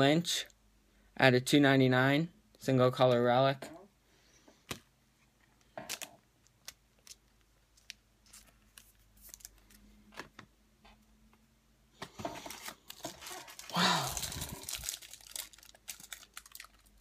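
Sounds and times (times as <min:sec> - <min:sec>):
trading cards clicking and rustling: 0:12.0 - 0:16.9.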